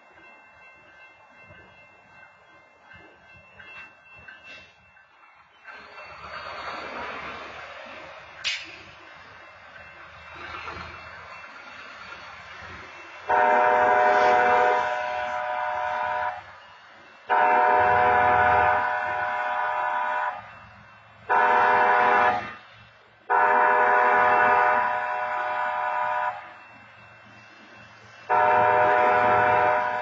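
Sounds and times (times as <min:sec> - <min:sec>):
train horn blasts: 0:13.3 - 0:16.5, 0:17.3 - 0:20.5, 0:21.3 - 0:22.6, 0:23.3 - 0:26.6, 0:28.3 - 0:30.0.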